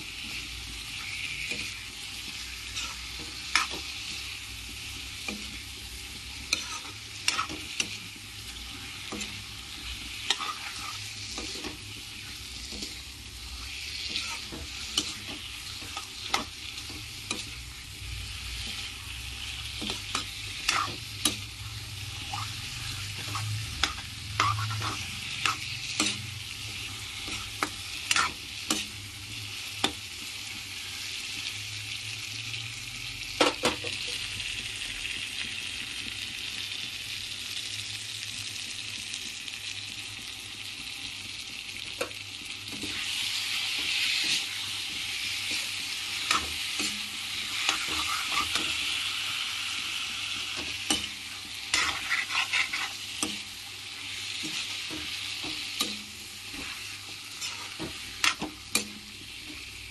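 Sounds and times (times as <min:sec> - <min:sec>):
chicken sizzling in a wok: 0:00.0 - 0:59.9
metal spatula scraping pan: 0:00.2 - 0:04.3, 0:06.3 - 0:29.0, 0:42.7 - 0:49.0, 0:50.6 - 0:59.7.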